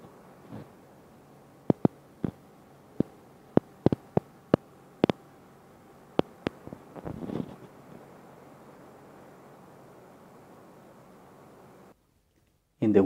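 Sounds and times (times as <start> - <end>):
microphone handling clicks: 1.7 - 2.4, 3.0 - 4.3, 6.2 - 8.0.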